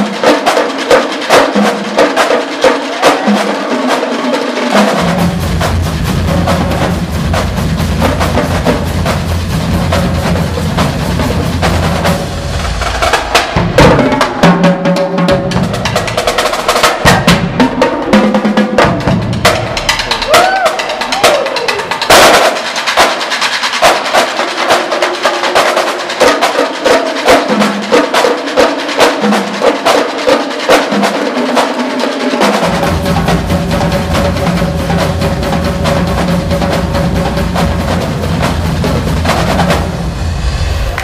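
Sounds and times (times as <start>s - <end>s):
marching drumline cadence: 0.0s - 41.0s.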